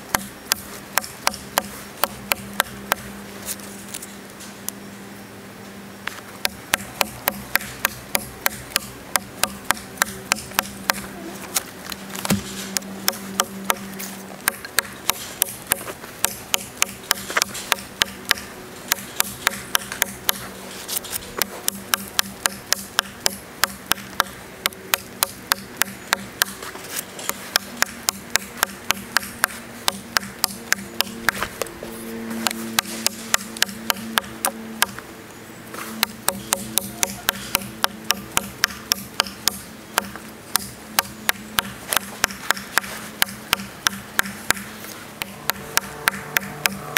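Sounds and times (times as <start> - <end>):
knife chopping into log: 12.2 - 13.8.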